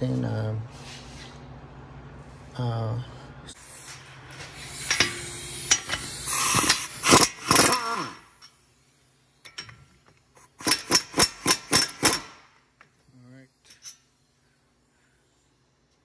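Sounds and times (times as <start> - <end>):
metal tools clinking: 4.8 - 6.8, 9.4 - 10.0, 13.6 - 14.1.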